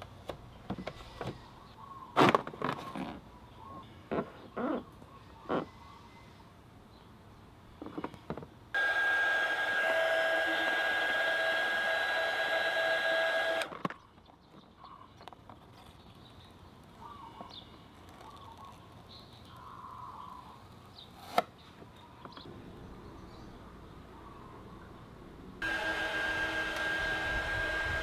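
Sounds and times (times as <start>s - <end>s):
heat gun fan whine: 8.8s - 13.8s, 25.6s - 28.0s.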